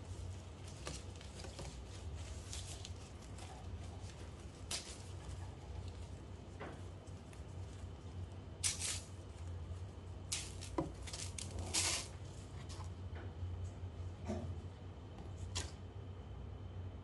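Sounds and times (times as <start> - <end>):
leaves rustling and crinkling: 0.0 - 12.9
low steady hum: 0.0 - 17.0.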